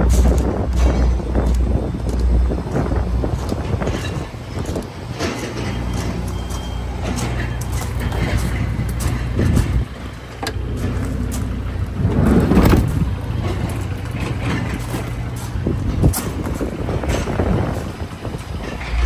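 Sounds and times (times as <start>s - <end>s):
vehicle engine idling: 0.0s - 19.0s.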